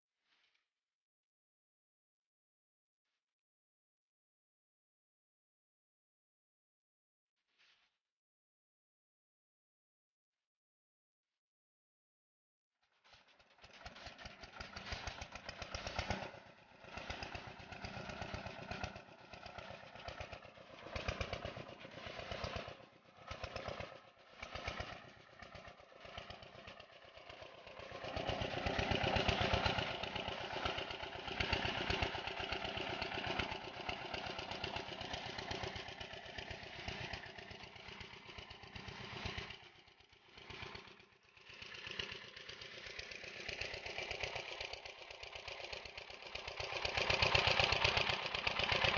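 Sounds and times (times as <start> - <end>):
diesel engine chugging: 14.2 - 39.7, 41.8 - 48.9.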